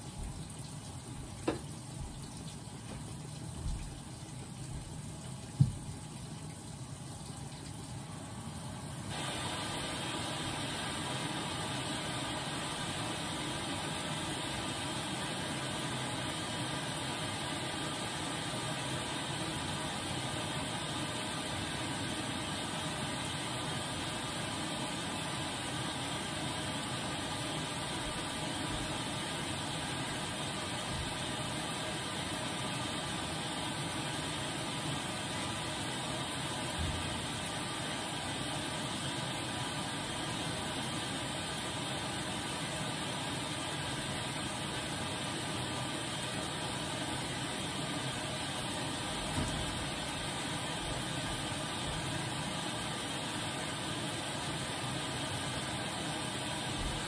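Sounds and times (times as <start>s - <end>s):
washing machine rushing noise: 0.0s - 57.0s
washing machine thump: 1.4s - 1.7s, 5.6s - 5.9s, 36.7s - 37.1s, 49.2s - 49.9s.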